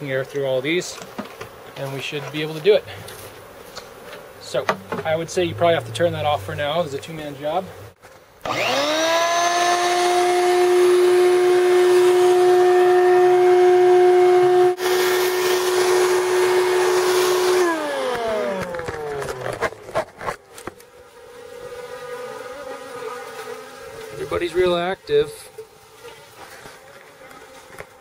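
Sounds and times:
honeybees buzzing: 0.0 - 28.0
vacuum motor whining: 8.5 - 19.9.

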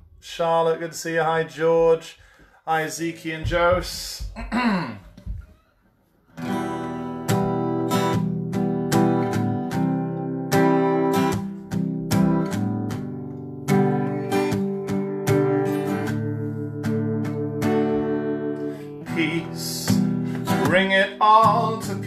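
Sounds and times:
acoustic guitar strumming: 6.3 - 22.0.

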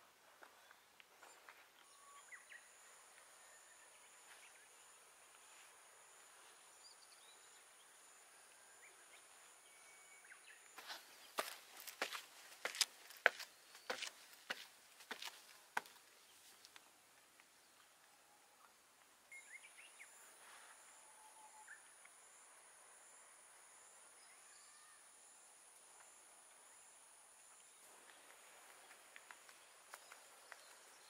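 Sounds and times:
footsteps: 10.8 - 16.8.

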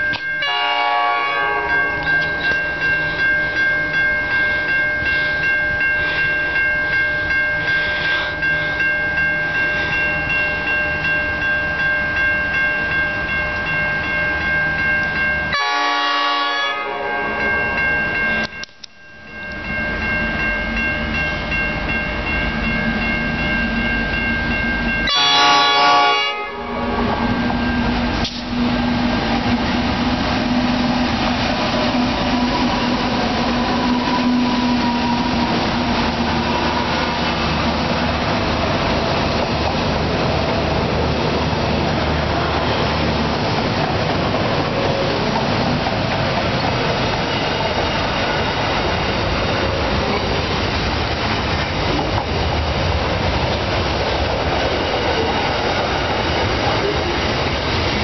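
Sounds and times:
level crossing bell ringing: 0.0 - 28.2
locomotive horn: 0.4 - 2.4, 7.8 - 8.4, 15.5 - 17.5, 25.1 - 27.4.

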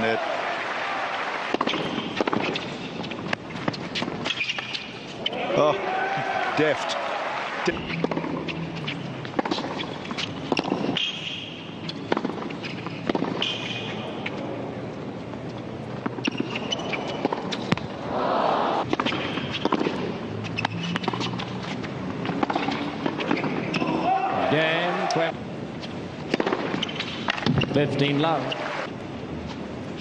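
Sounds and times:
racquet striking tennis ball: 1.3 - 5.6, 7.0 - 14.4, 15.7 - 18.2, 18.8 - 24.5, 26.2 - 27.7
shoes squeaking on court: 1.6 - 5.6, 7.7 - 18.0, 18.8 - 23.9, 25.8 - 28.8
crowd murmur: 18.0 - 18.8.

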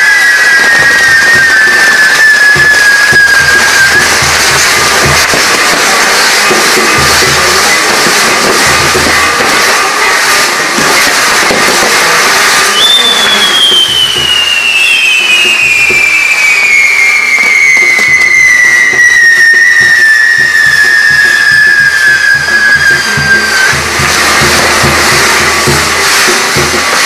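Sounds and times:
fireworks whistle falling in pitch: 0.0 - 27.0
hiss and crackle of fireworks: 0.0 - 27.0
low drum beat: 6.7 - 9.6, 23.0 - 27.0.

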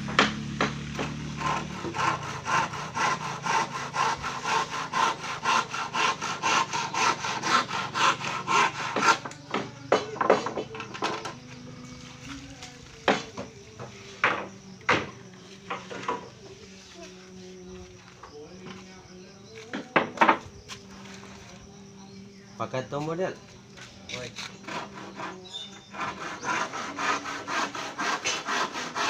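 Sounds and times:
hand saw cutting wood: 0.0 - 11.4, 24.1 - 29.0.

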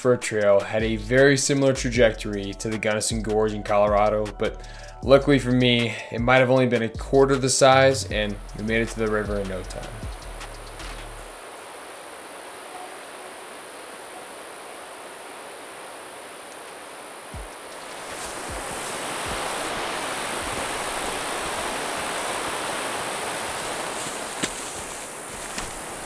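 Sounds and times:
river water rushing: 11.2 - 26.0.

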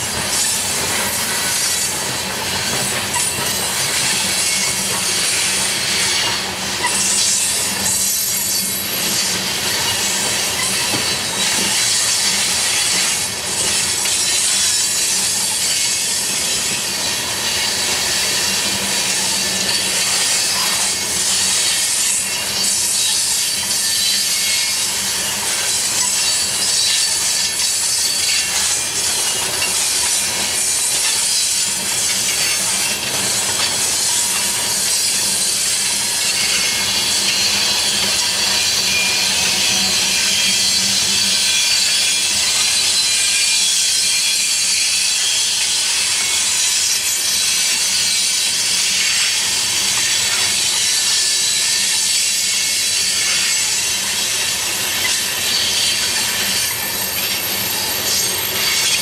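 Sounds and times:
wheels rushing on rail: 0.0 - 59.0
wheels squealing on curve: 50.1 - 59.0.

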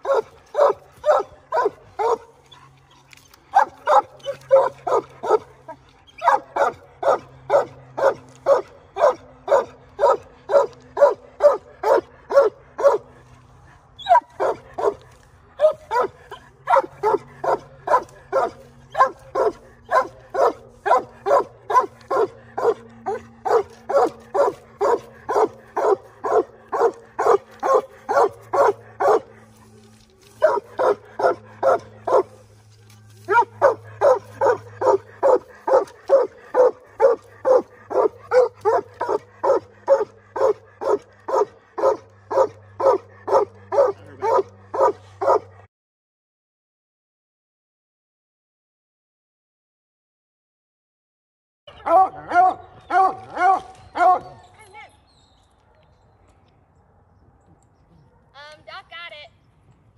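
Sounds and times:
dogs barking: 0.0 - 13.3, 14.0 - 32.5, 33.2 - 45.7, 51.7 - 54.5.

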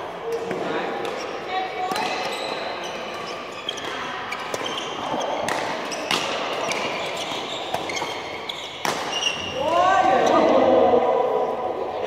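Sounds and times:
shoes squeaking on court: 1.0 - 9.6
rackets striking shuttlecock: 3.1 - 9.6.

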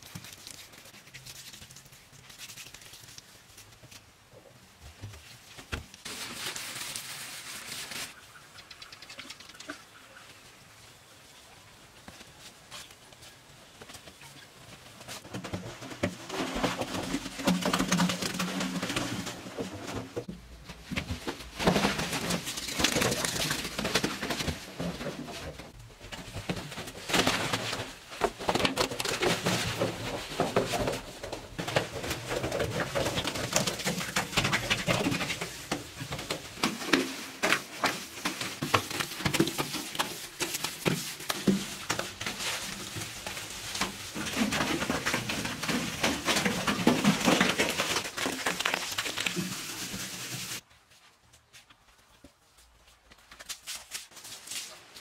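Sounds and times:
knocks scuffs and rustling: 11.9 - 55.0.

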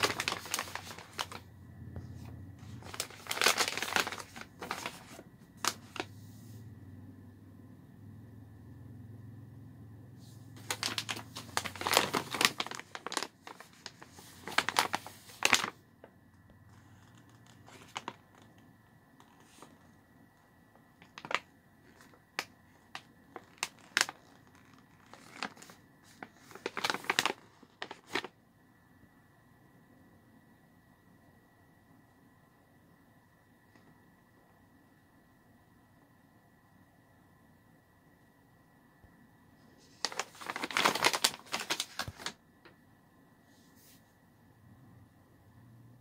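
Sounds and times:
plastic snack pouches crinkling: 0.0 - 1.4, 2.6 - 6.1, 10.6 - 15.8, 16.8 - 18.6, 21.0 - 28.3, 39.9 - 42.4.

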